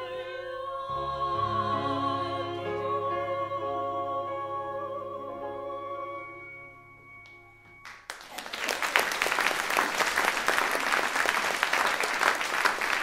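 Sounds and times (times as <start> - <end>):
audience applause: 7.8 - 13.0.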